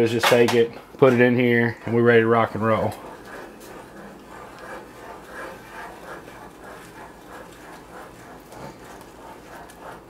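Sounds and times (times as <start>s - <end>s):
metal spoon stirring sauce: 2.0s - 10.0s.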